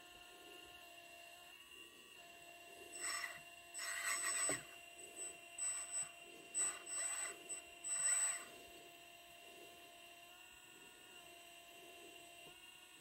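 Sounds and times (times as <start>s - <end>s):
faint steady motor whine: 0.0s - 13.0s
hydraulic hiss and whirring: 2.6s - 10.2s.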